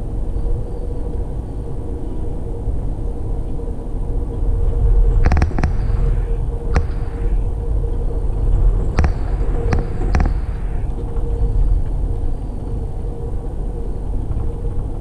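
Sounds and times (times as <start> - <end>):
faint steady hum: 0.0 - 15.0
train car low rumble: 0.0 - 15.0
sharp clicks: 5.2 - 7.5, 9.0 - 11.2.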